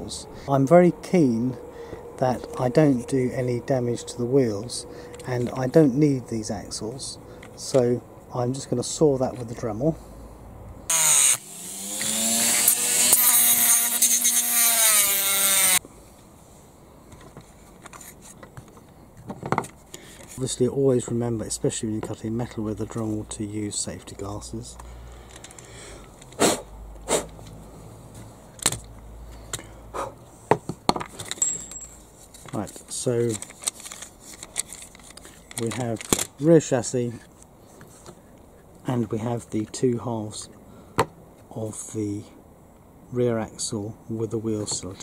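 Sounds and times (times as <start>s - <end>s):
rotary tool cutting metal: 10.9s - 15.8s.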